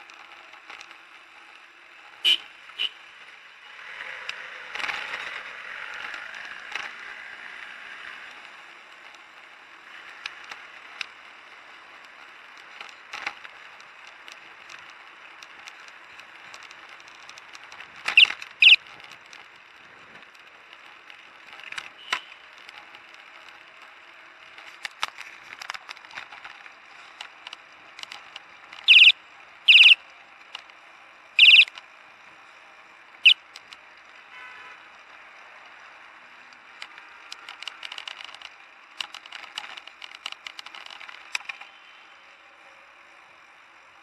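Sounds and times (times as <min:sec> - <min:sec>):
wind and tyre noise: 0:00.0 - 0:44.0
high-pitched tones: 0:18.2 - 0:18.8, 0:28.9 - 0:29.1, 0:29.7 - 0:30.0, 0:31.4 - 0:31.7.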